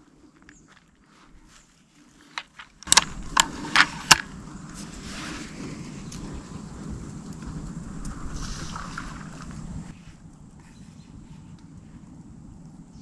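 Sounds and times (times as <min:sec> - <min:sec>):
sharp clicks and knocks: 0:02.3 - 0:04.3
steady low rumble: 0:02.8 - 0:13.0.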